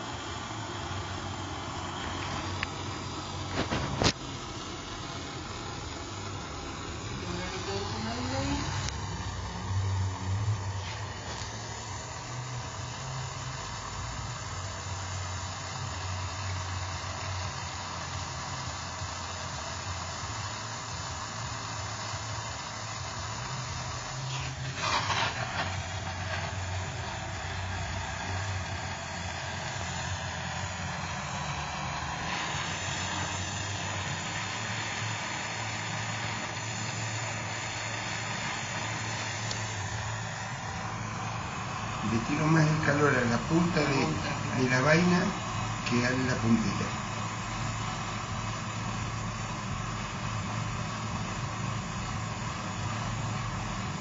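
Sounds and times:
low hum: 0:00.0 - 0:54.0
torch flame hissing: 0:00.0 - 0:54.0.

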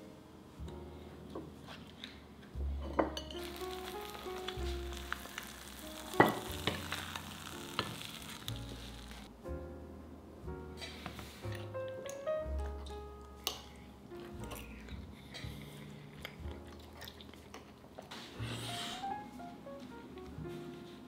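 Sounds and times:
eggs sizzling in a pan: 0:03.2 - 0:09.3.

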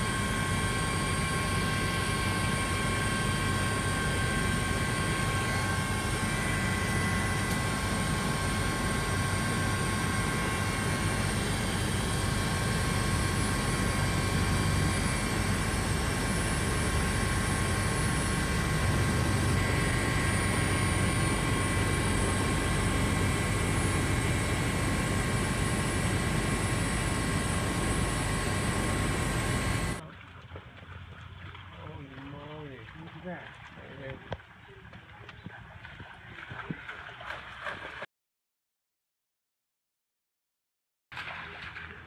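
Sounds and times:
aircraft cabin drone: 0:00.0 - 0:30.0
high-pitched whines: 0:00.0 - 0:30.0.

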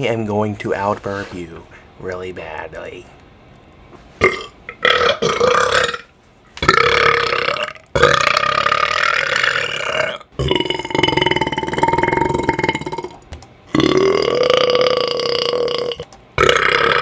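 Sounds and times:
man belching: 0:04.2 - 0:17.0.

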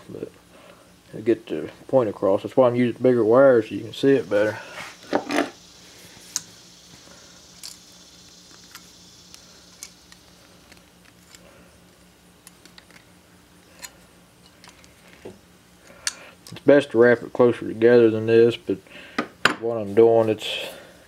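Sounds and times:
pliers and wire clicking: 0:07.5 - 0:15.0, 0:15.8 - 0:16.7.

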